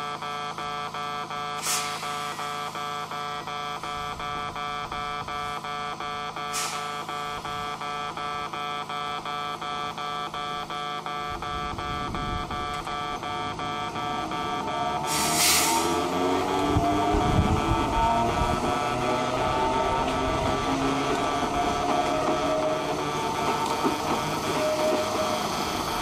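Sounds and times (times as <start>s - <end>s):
train traction motor whine: 0.0s - 26.0s
train air hisses: 1.6s - 2.6s, 6.5s - 7.1s, 15.1s - 16.0s.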